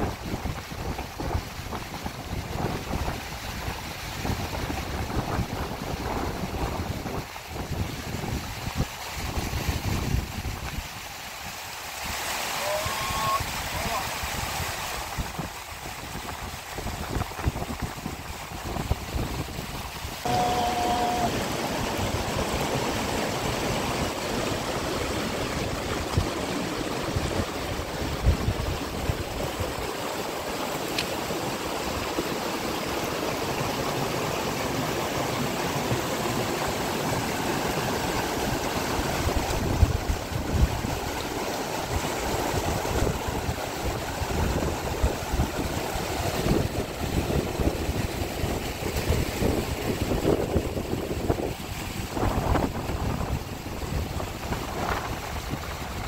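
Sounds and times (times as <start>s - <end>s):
wind gusting on microphone: 0.0s - 10.9s, 13.0s - 30.1s, 38.0s - 41.2s, 41.8s - 56.0s
heavy rain pouring: 12.2s - 15.4s, 20.1s - 56.0s.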